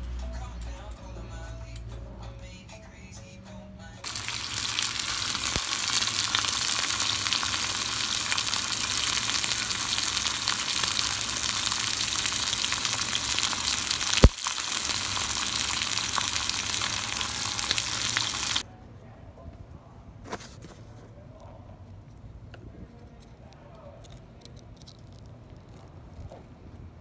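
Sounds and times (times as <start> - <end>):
steak sizzling in hot oil: 4.0 - 18.6.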